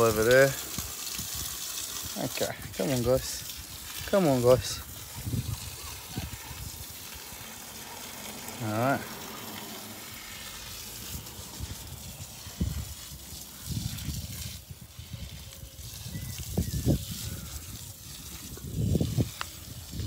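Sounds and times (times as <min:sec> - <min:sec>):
water running through hose: 0:00.0 - 0:20.0.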